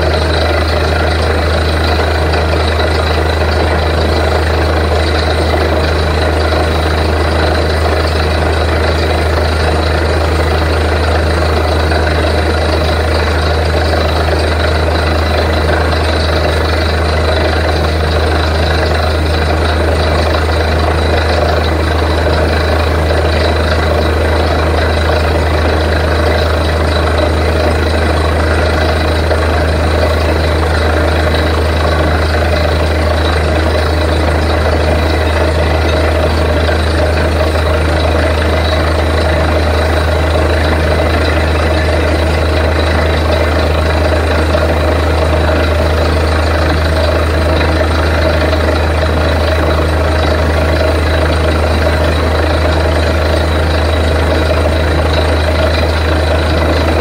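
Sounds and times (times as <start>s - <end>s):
diesel engine droning: 0.0s - 57.0s.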